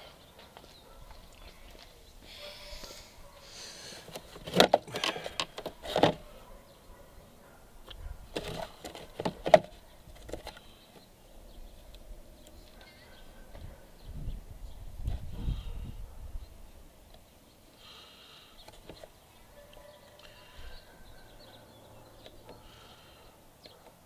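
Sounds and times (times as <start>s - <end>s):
plastic parts clicking and knocking: 4.1s - 6.2s.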